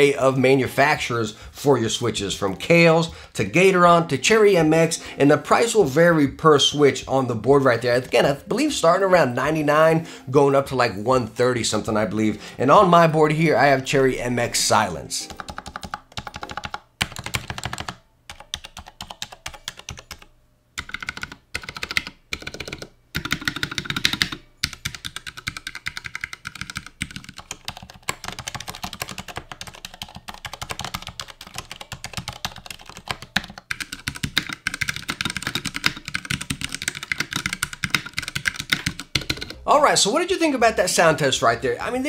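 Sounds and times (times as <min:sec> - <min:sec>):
mechanical keyboard typing: 0:15.2 - 0:39.6.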